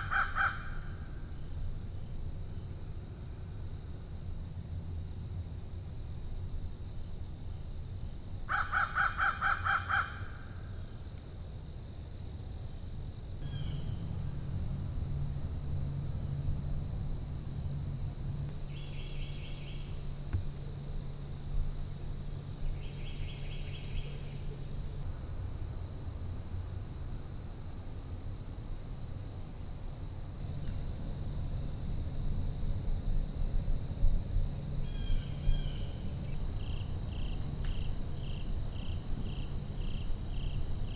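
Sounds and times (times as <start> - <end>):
insect chirping: 0.0 - 40.9
insects buzzing: 0.0 - 40.9.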